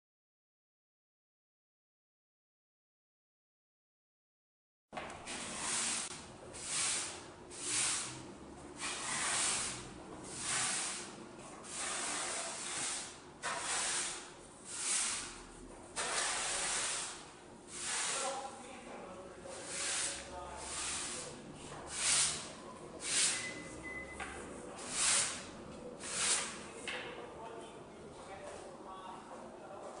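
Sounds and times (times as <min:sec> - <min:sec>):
broom sweeping concrete floor: 0:05.0 - 0:26.9.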